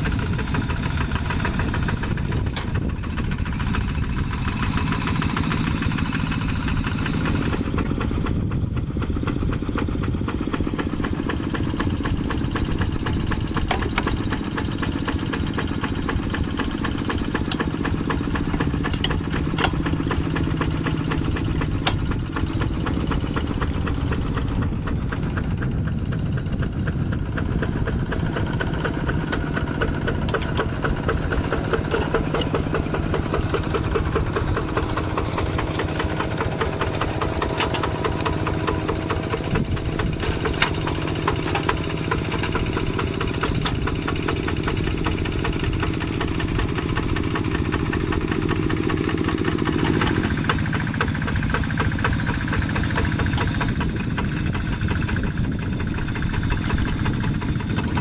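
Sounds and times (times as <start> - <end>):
diesel tractor engine running: 0.0 - 58.0
metal clanks: 29.3 - 44.3.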